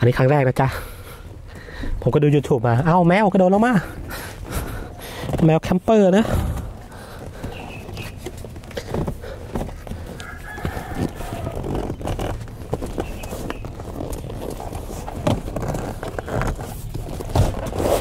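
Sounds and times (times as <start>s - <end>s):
hens clucking: 8.8s - 11.7s
rooster crowing: 10.0s - 11.9s.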